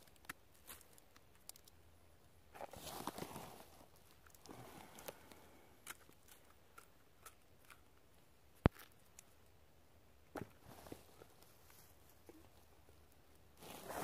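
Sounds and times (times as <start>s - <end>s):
undergrowth rustling: 2.6s - 5.3s.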